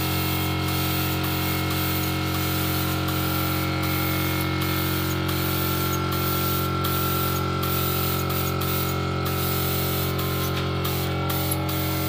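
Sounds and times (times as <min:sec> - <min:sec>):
spray gun hissing: 0:00.0 - 0:12.0.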